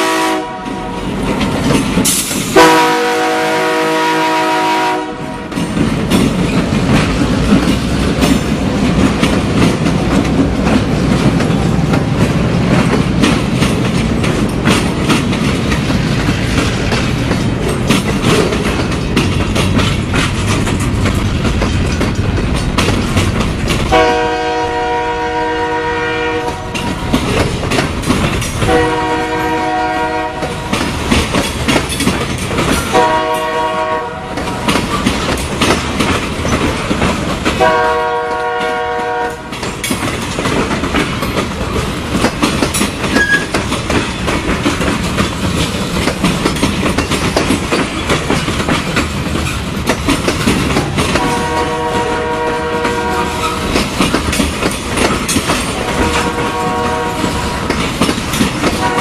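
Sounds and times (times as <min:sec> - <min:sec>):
train horn blasts: 0:00.0 - 0:01.1, 0:02.5 - 0:05.5, 0:23.9 - 0:27.2, 0:28.6 - 0:30.8, 0:32.9 - 0:34.5, 0:37.6 - 0:39.6, 0:51.1 - 0:53.7, 0:55.7 - 0:57.7, 0:58.8 - 0:59.0
train wheels clacking on rails: 0:00.0 - 0:59.0.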